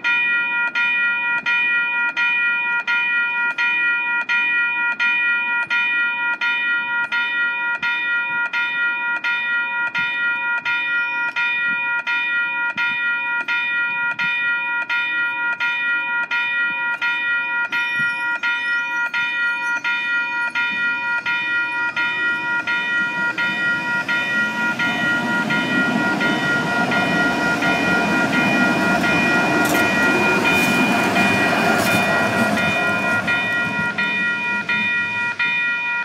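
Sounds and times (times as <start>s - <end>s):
level crossing warning bell: 0.0s - 36.0s
train wheels rumbling on rails: 12.7s - 36.0s
high whine: 19.8s - 36.0s.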